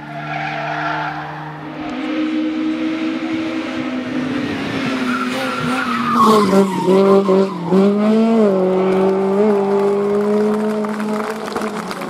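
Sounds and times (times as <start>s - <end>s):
race car engine revving: 0.5s - 12.0s
tyre squeal: 5.0s - 8.0s.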